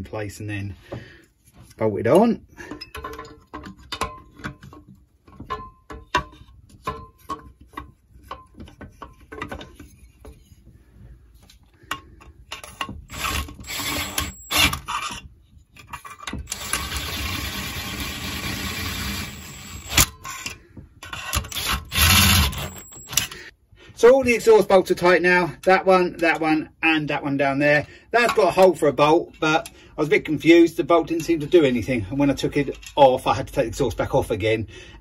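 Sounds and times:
metal clinks and knocks: 2.6 - 10.6
power driver whirring: 13.1 - 14.8, 16.4 - 20.2, 21.3 - 23.4.

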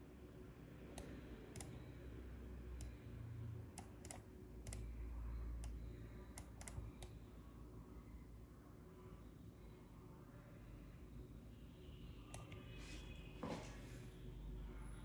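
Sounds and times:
low steady hum: 0.0 - 15.0
computer input clicks: 3.8 - 4.9, 6.4 - 7.1.

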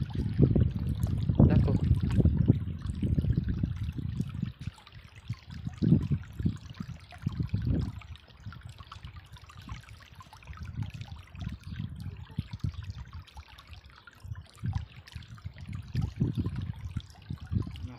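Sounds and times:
low rumbles and thuds: 0.0 - 4.2
stream trickling over rocks: 0.0 - 17.9.

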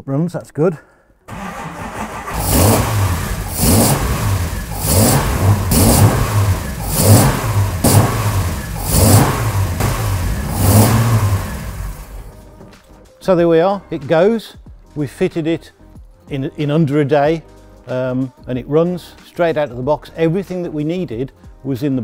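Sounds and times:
car engine revving: 1.3 - 12.4
starter motor cranking: 1.3 - 12.4.

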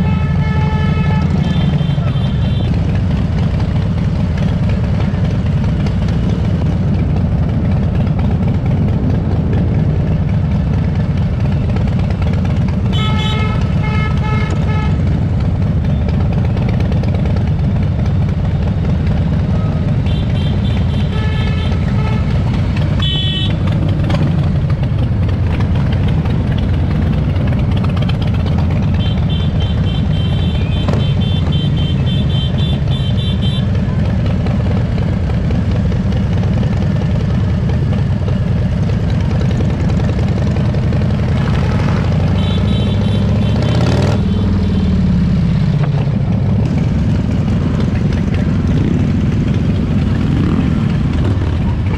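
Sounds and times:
motorcycle engines rumbling: 0.0 - 51.9
short repeated horn beeps: 29.0 - 33.7, 42.3 - 44.9.

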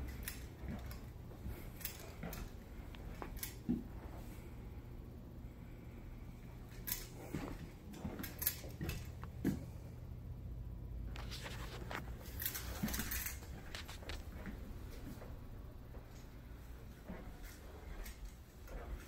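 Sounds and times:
light footsteps: 0.0 - 4.4, 6.6 - 9.9, 11.1 - 19.0
low steady hum: 0.0 - 19.0.

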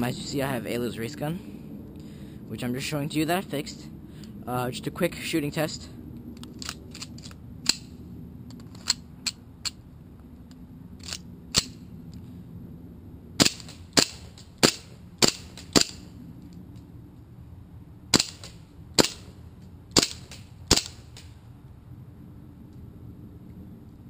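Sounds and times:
airsoft pistol shots: 13.4 - 16.0, 18.1 - 19.3, 20.0 - 21.3.

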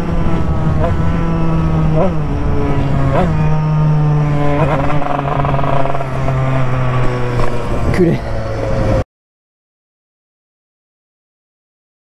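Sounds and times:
dirt bike engine revving: 0.0 - 9.0.

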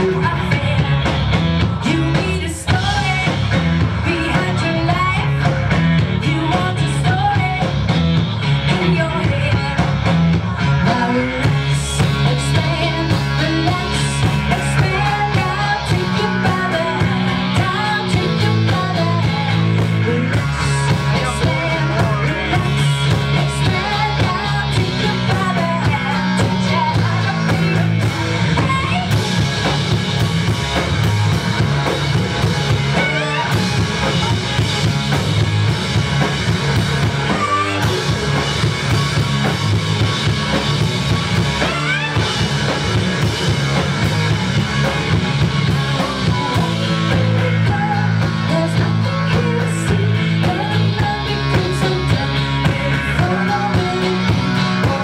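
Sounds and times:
person singing: 0.0 - 7.8, 10.8 - 29.4, 32.7 - 34.6, 36.6 - 39.0, 44.2 - 55.0
drum kit: 0.0 - 55.0
electric bass guitar: 0.0 - 55.0.

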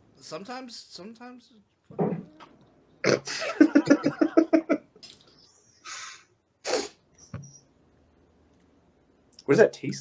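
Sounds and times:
sharp burst of breath: 5.8 - 7.0.

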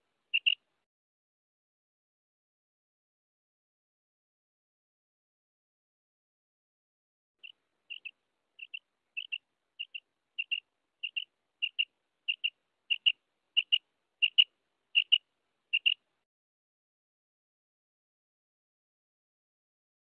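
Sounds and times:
quail calling: 0.3 - 0.6, 7.4 - 16.0.

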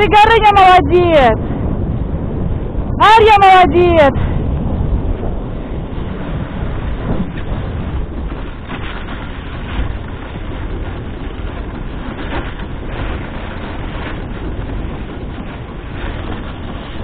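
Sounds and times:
sled runners gliding over snow: 0.0 - 17.0
wind on microphone: 0.0 - 17.0
runner scrape: 6.4 - 17.0.

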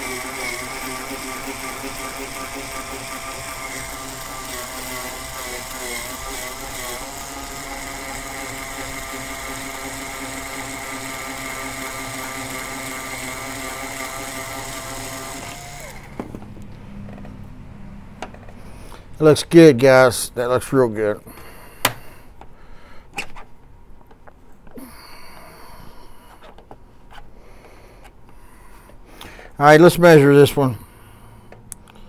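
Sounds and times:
power drill motor whine: 0.0 - 16.4.

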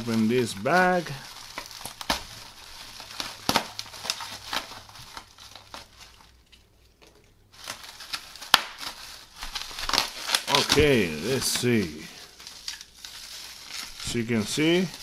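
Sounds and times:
plastic bag and bubble wrap crinkling: 0.0 - 15.0
sharp crackles: 7.6 - 15.0.

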